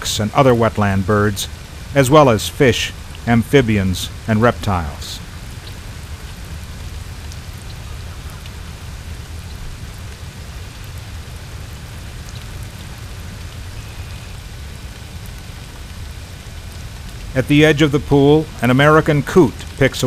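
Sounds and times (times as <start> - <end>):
rain: 0.0 - 20.0
wind: 0.0 - 20.0.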